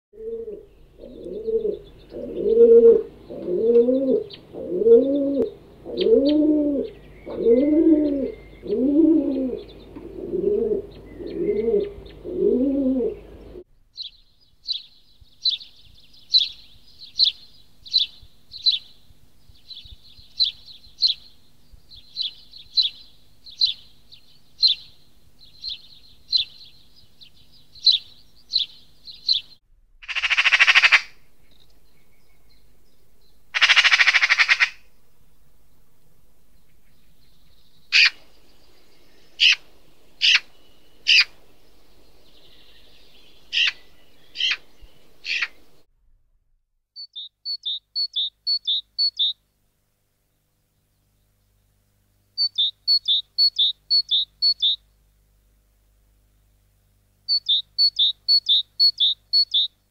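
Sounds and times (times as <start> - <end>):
pigeon cooing: 0.2 - 13.6
sparrow chirping: 0.6 - 12.4, 13.1 - 34.8, 36.5 - 45.8, 47.0 - 49.4, 52.4 - 54.8, 57.3 - 59.8
faint bird chirps: 5.4 - 12.5, 13.1 - 29.6, 47.0 - 49.4, 52.4 - 55.0, 57.3 - 59.9.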